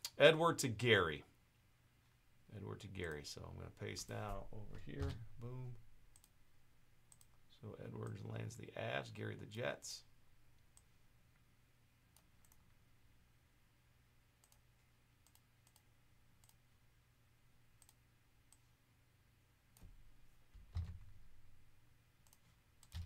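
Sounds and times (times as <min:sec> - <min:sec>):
computer mouse clicks: 0:06.1 - 0:06.4, 0:07.1 - 0:07.4, 0:12.1 - 0:12.7, 0:14.4 - 0:16.6, 0:17.8 - 0:18.6, 0:22.2 - 0:23.0.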